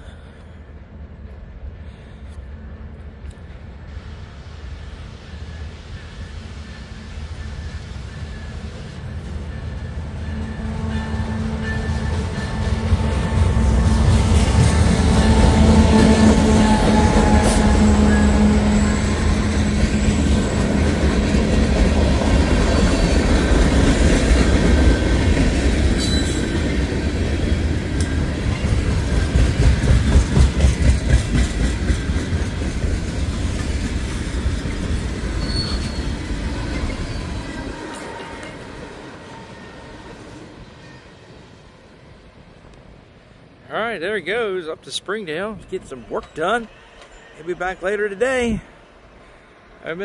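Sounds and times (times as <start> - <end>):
locomotive engine drone: 0.0 - 30.2
train wheels rolling over rails: 0.4 - 42.9.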